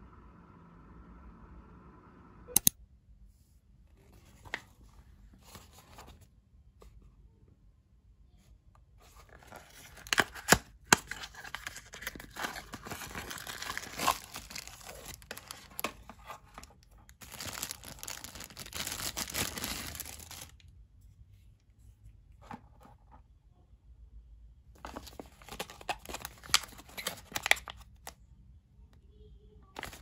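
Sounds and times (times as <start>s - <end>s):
plastic bag crinkling: 11.1s - 20.6s, 29.8s - 30.0s.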